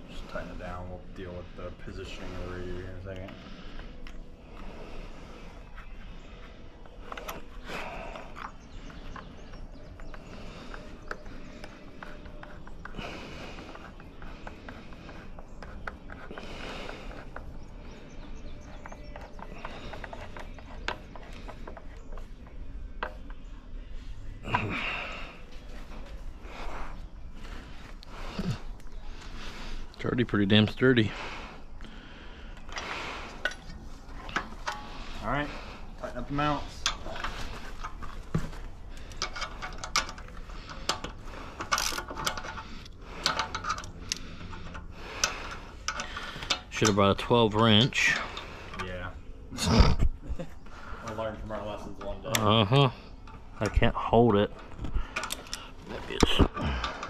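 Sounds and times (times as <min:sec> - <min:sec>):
clicks and knocks of hand tools: 0:36.8 - 0:47.0, 0:54.6 - 0:57.0.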